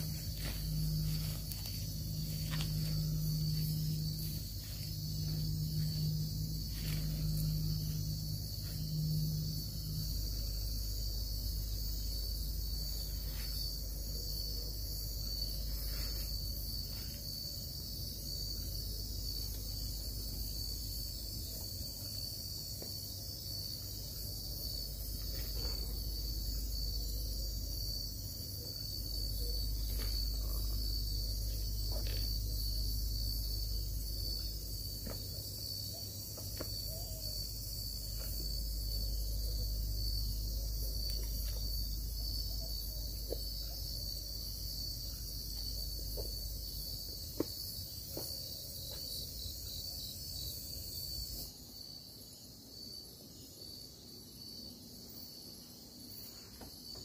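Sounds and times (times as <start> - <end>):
low hum: 0.0 - 22.7
night insects trilling: 0.0 - 57.0.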